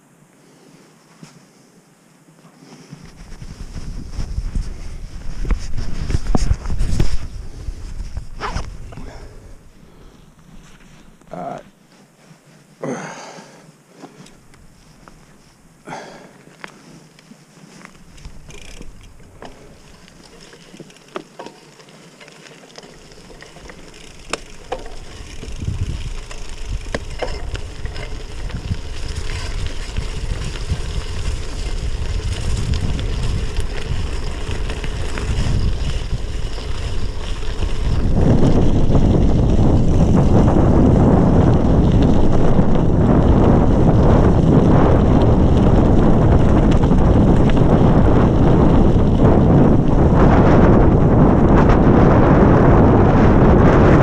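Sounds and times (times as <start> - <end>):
wind rushing over microphone: 3.0 - 11.7, 23.0 - 54.0
tyres crunching on wet gravel: 14.2 - 49.3.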